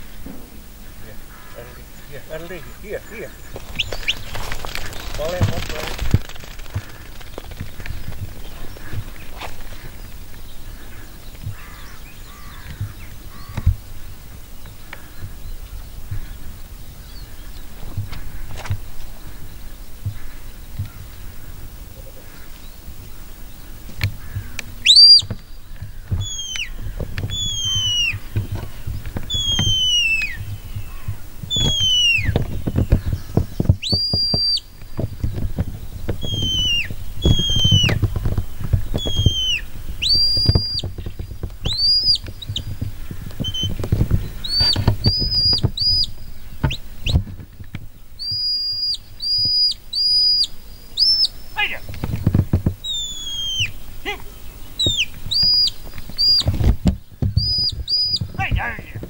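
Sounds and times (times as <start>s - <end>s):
wind rumbling on microphone: 0.0s - 59.0s
high whistles: 24.8s - 25.3s, 26.2s - 28.2s, 29.3s - 30.4s, 31.5s - 32.4s, 33.8s - 34.7s, 36.2s - 38.0s, 39.0s - 40.9s, 48.2s - 51.8s, 52.8s - 53.8s, 54.8s - 56.5s, 57.4s - 58.2s.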